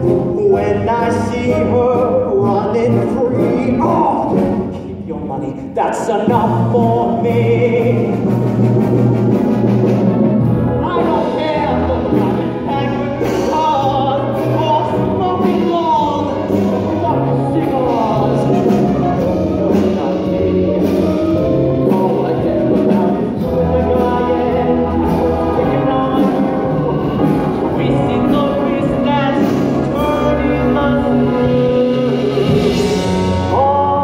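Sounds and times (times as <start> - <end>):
singing over band accompaniment: 10.5 - 34.0.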